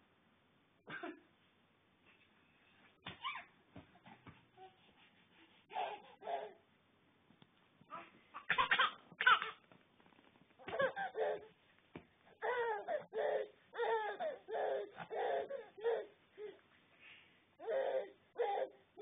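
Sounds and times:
baby laughing: 5.6s - 6.6s, 8.4s - 9.6s, 10.6s - 11.5s.

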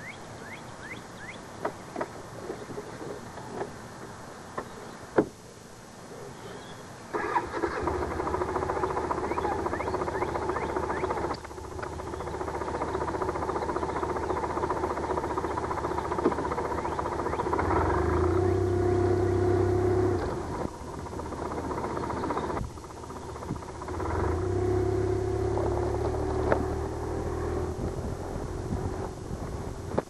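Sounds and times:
motorcycle engine running: 7.6s - 30.0s.

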